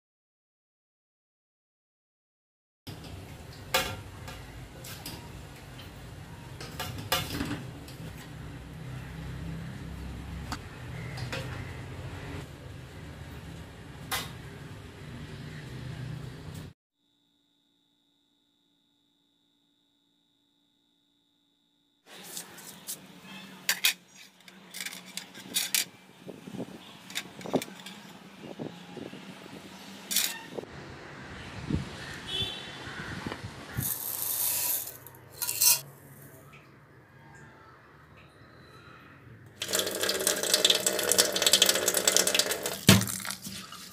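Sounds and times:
metal spoon clinking: 33.8 - 35.9.

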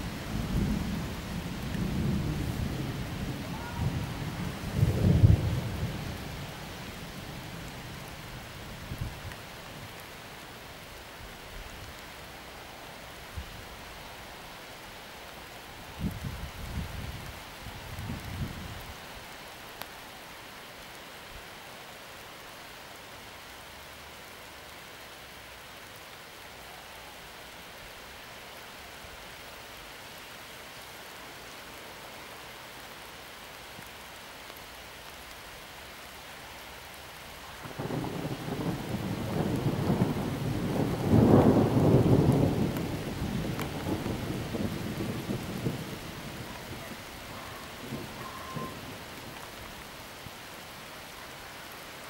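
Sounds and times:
steady rain hiss: 0.0 - 52.0
thunder rumbling: 0.3 - 6.4, 37.6 - 49.6.

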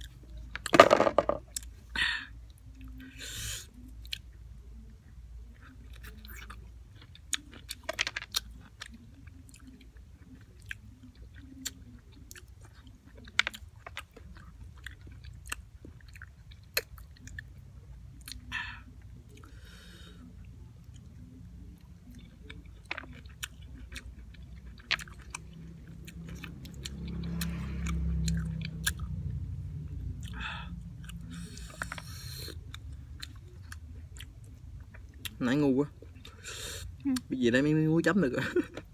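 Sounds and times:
person chewing: 5.5 - 20.2, 20.8 - 29.4, 30.1 - 35.4.

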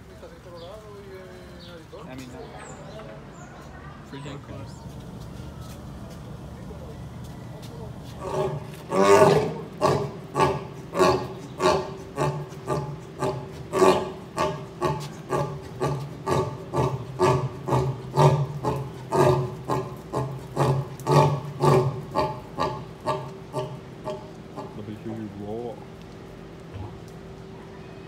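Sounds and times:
lion roaring: 7.9 - 24.9.

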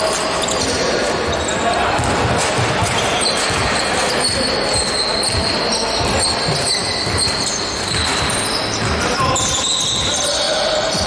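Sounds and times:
echoing sports hall noise: 0.0 - 11.0
basketball bouncing: 1.3 - 10.2.

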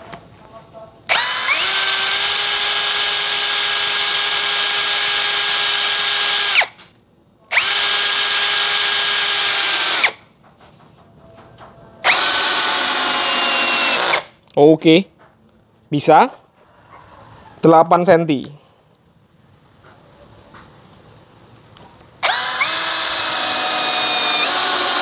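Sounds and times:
cordless drill driving screw: 1.1 - 6.8, 7.5 - 10.2, 12.0 - 14.3, 22.2 - 25.0.

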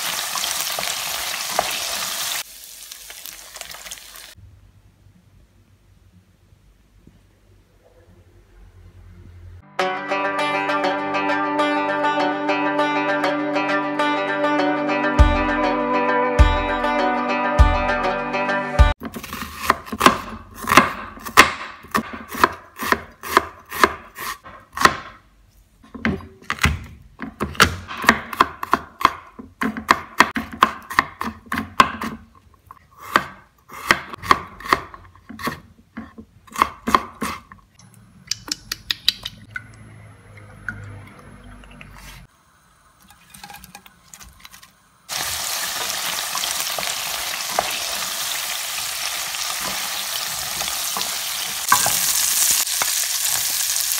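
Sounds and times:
shrimp sizzling in oil: 0.0 - 4.4, 45.1 - 53.9
knife chopping on cutting board: 19.1 - 25.2, 26.0 - 32.2, 33.0 - 37.5.

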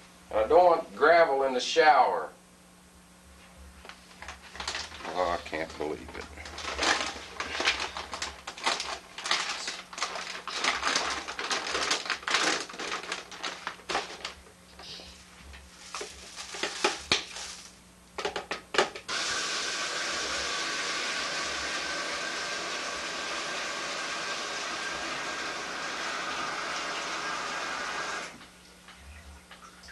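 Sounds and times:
paper bag crinkling: 4.1 - 14.5, 15.1 - 17.8
shower water rushing: 19.1 - 28.4.

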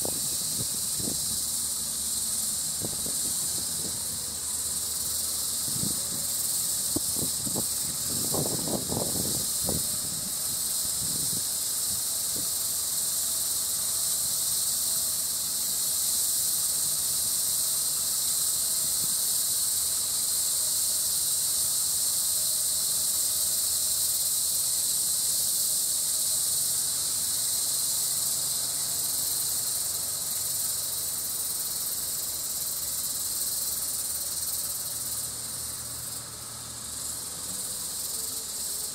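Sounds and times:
high-pitched insect drone: 0.0 - 38.9.

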